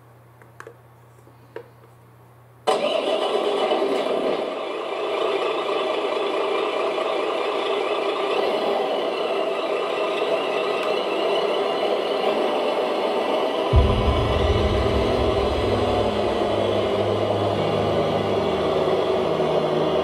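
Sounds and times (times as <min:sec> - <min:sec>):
deep low rumble: 0:13.7 - 0:20.0.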